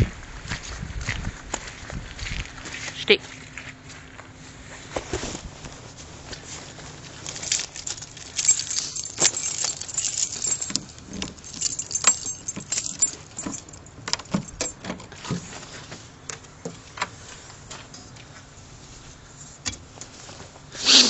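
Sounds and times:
footsteps on gravel: 0:00.0 - 0:13.2
small metal pieces jingling: 0:07.2 - 0:14.8.

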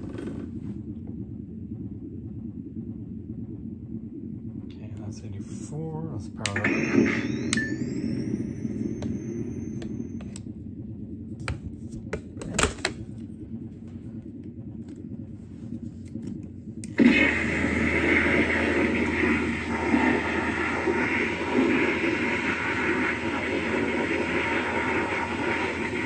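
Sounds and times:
low electronic idle hum: 0:00.0 - 0:26.0
electronic firing sound effect: 0:06.4 - 0:10.4
electronic power-up whine: 0:06.4 - 0:10.4, 0:17.0 - 0:26.0.

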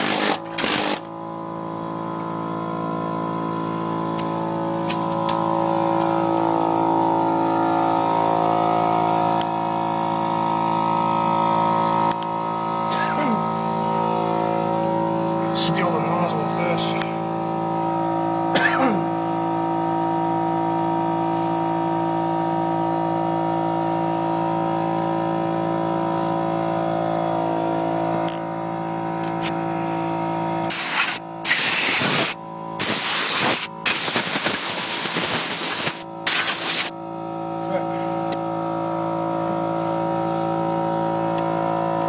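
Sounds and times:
steady machine drone: 0:00.0 - 0:42.0
paint spray hissing: 0:30.7 - 0:36.9.

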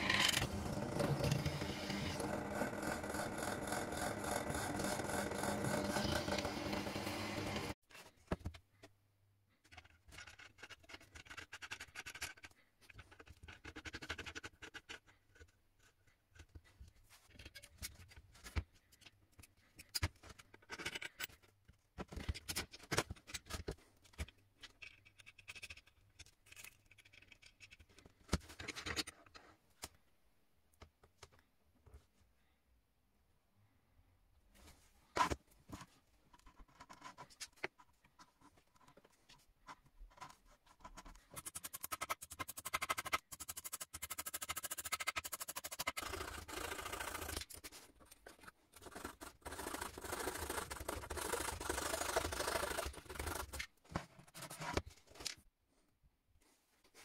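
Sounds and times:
power tool running: 0:00.4 - 0:07.8.

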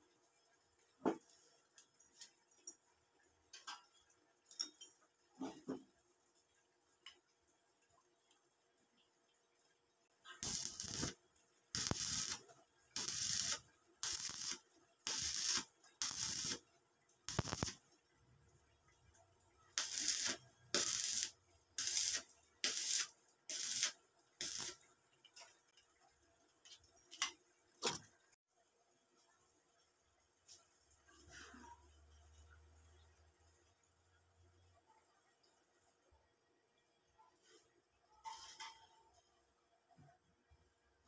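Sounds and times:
arc welder crackling: 0:10.3 - 0:16.6, 0:17.3 - 0:17.8, 0:19.8 - 0:24.8.

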